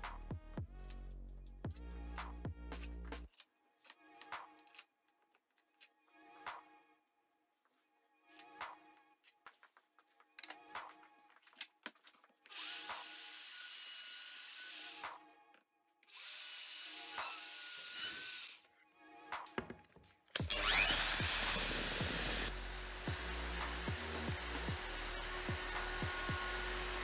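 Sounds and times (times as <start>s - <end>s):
soft background music: 0.0s - 27.0s
router bit cutting wood: 16.2s - 18.6s, 20.4s - 27.0s
router motor running: 20.4s - 27.0s.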